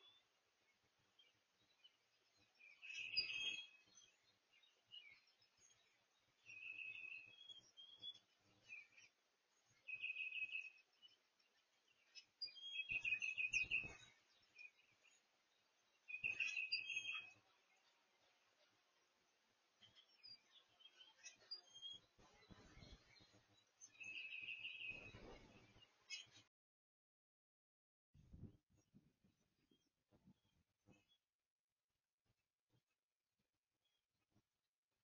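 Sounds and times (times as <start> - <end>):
songbird singing: 0.0 - 26.5.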